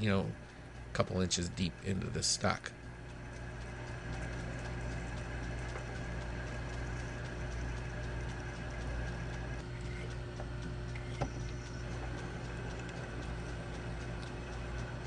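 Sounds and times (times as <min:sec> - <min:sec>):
faint gear ticking: 0:00.0 - 0:15.0
metal lathe humming: 0:03.1 - 0:15.0.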